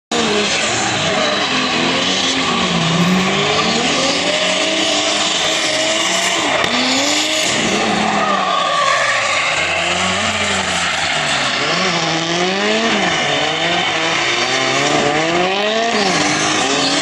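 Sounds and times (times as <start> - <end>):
car engine revving: 0.1 - 17.0
tyres screeching: 0.7 - 11.4.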